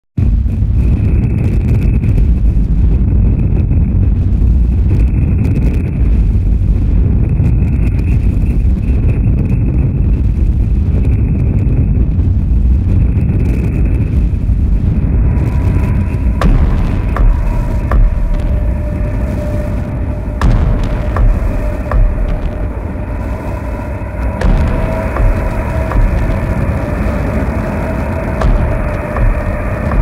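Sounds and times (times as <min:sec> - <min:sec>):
low rumbling noise wall: 0:00.2 - 0:30.0
steady mid-pitched tone: 0:14.6 - 0:30.0.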